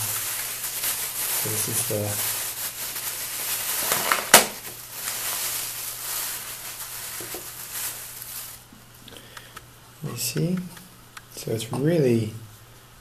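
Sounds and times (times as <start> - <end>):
plastic packaging crinkling: 0.0 - 8.7.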